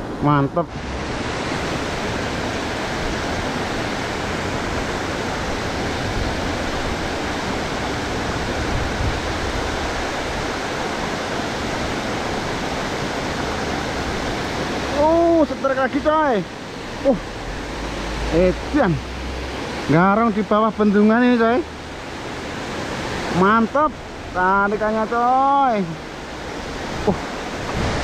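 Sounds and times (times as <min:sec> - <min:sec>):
water rushing over weir: 0:00.0 - 0:28.0.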